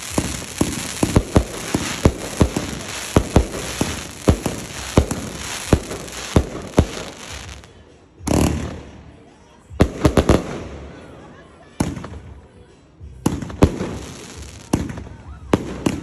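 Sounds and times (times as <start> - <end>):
crackling hiss: 0.0 - 7.7
firework bangs: 0.0 - 7.7.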